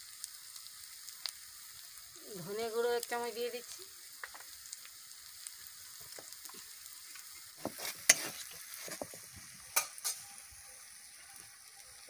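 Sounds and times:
spices sizzling in oil: 0.0s - 12.0s
spatula scraping metal pan: 7.6s - 9.2s.

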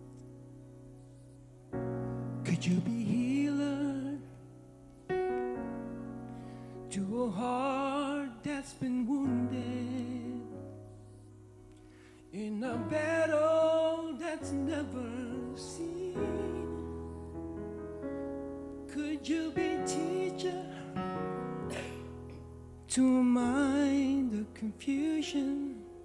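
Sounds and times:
person singing with vibrato: 2.4s - 4.4s, 6.9s - 10.8s, 12.3s - 17.3s, 18.8s - 22.2s, 22.9s - 26.0s.

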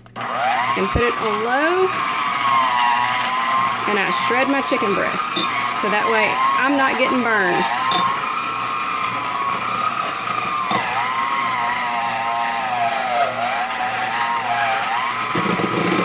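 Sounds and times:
electric hand mixer whining: 0.0s - 16.0s
mixer click: 9.4s - 10.9s.

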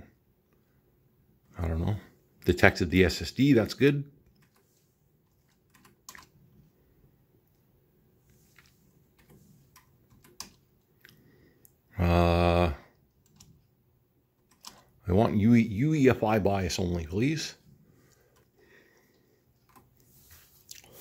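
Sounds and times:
keyboard keys clicking: 5.4s - 6.4s, 9.1s - 10.6s, 14.4s - 14.9s.

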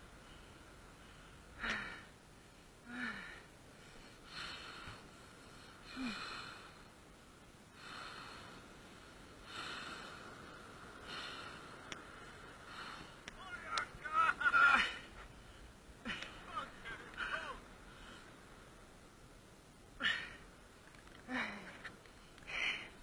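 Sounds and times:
person gasping breaths: 0.2s - 2.2s, 2.8s - 6.9s, 20.0s - 20.5s, 21.2s - 23.0s.

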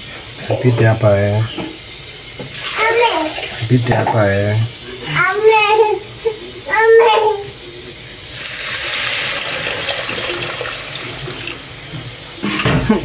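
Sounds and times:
water pouring into a pot: 7.5s - 11.9s.

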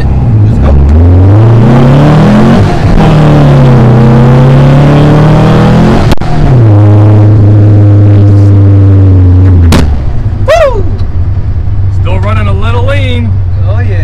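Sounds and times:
car engine accelerating: 0.0s - 14.0s.

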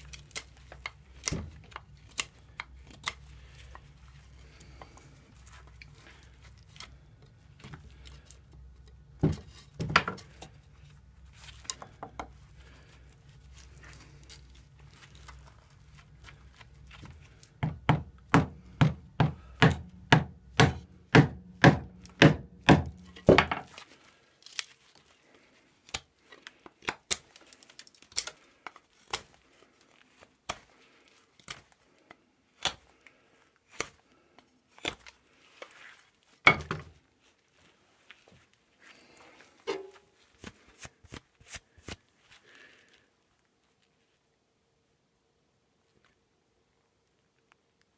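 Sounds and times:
rubber mallet hammering knife spine: 17.6s - 23.1s.

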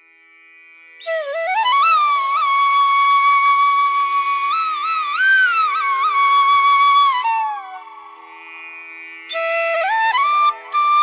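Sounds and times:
flute melody: 1.0s - 8.2s, 9.3s - 11.0s.

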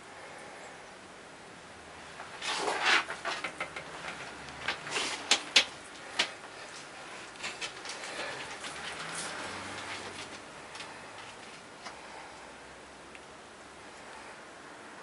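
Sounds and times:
lizard claws scraping on bark: 2.3s - 6.4s.

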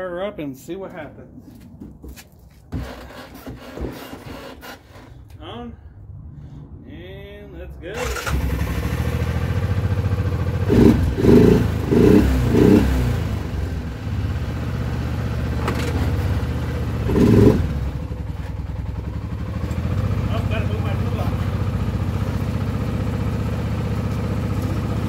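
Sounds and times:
quad engine revving: 8.0s - 18.6s, 19.2s - 25.0s.

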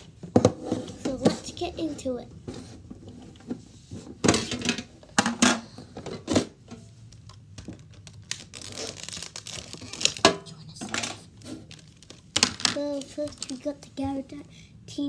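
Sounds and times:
plastic packaging rustling: 7.1s - 10.3s, 11.0s - 13.8s.

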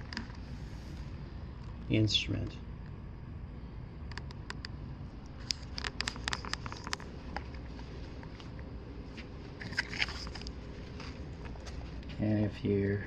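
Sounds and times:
low room hum: 0.0s - 13.0s
handling crackles and ticks: 4.1s - 12.3s.

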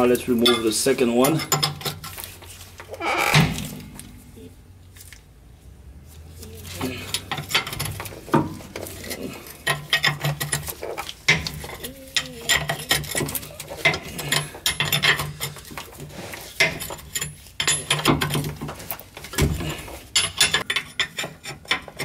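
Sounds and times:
wrench clinking on metal nut: 0.1s - 2.2s, 9.0s - 15.9s, 16.6s - 18.6s, 19.6s - 22.0s.

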